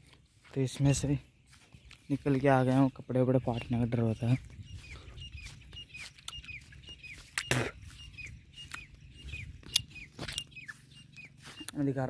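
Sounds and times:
footsteps through dry grass: 0.0s - 12.0s
small animal high chirps: 4.7s - 12.0s.

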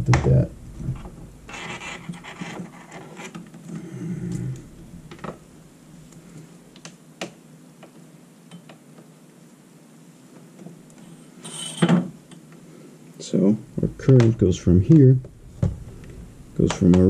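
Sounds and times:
test leads rustling and scraping: 0.0s - 6.5s.

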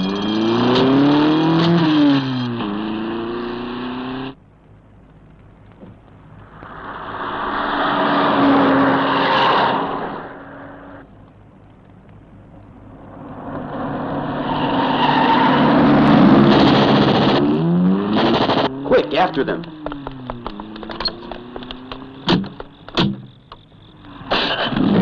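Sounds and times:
car engine revving: 0.0s - 4.4s, 6.4s - 11.0s, 12.9s - 23.1s.

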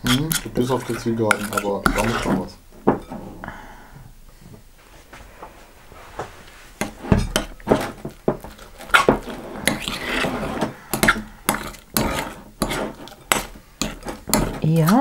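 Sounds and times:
spoon scraping glass bowl: 0.0s - 2.5s, 6.8s - 15.0s.

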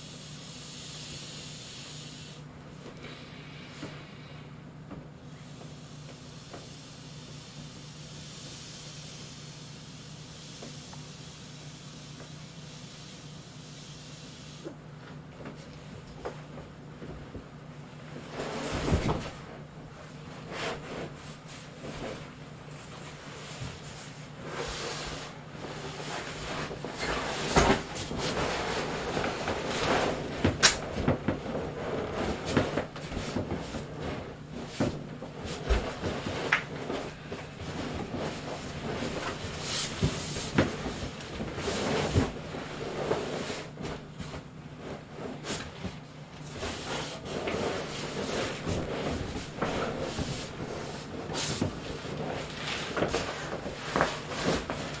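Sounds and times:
plastic raincoat rubbing on vinyl: 23.5s - 45.8s, 46.5s - 55.0s.

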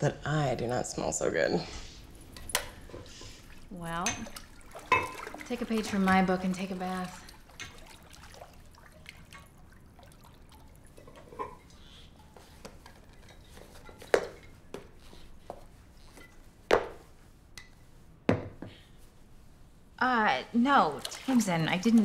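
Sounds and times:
bathwater dripping and sloshing: 2.1s - 17.1s, 20.5s - 22.0s.

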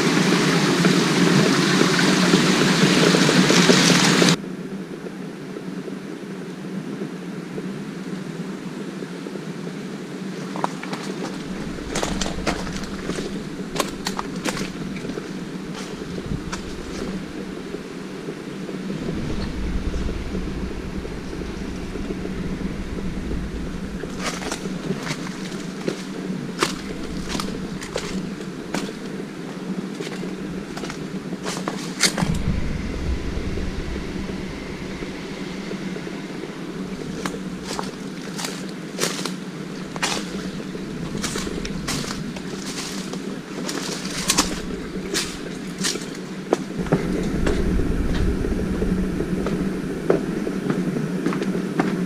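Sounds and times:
wind rumbling on microphone: 0.0s - 52.0s
steady low hum: 4.3s - 6.2s, 11.1s - 52.0s
footsteps crunching on leaves: 11.0s - 18.2s, 22.9s - 46.9s.

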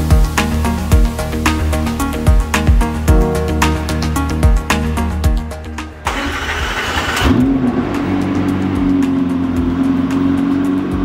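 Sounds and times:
background music: 0.0s - 11.0s
car engine starting and idling: 3.1s - 11.0s.

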